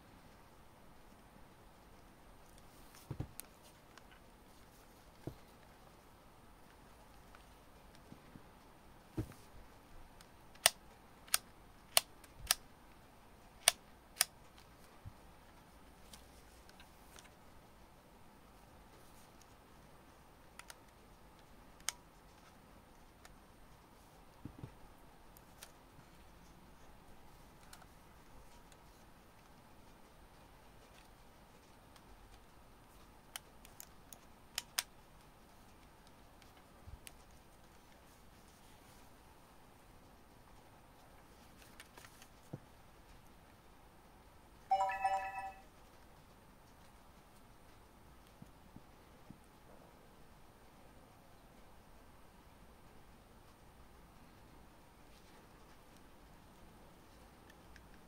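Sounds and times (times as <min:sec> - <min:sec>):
soft handling thump: 0:03.0 - 0:03.4, 0:09.2 - 0:09.5.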